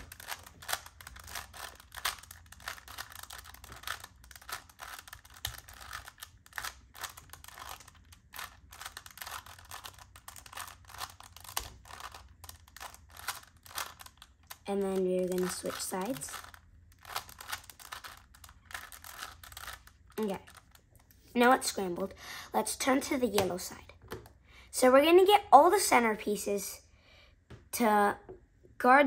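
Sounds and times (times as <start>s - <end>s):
puzzle cube clicking: 0.0s - 20.8s.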